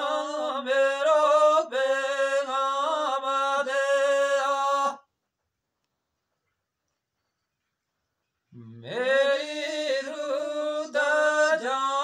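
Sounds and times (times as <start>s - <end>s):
man singing unaccompanied: 0.0s - 5.1s, 8.5s - 12.0s.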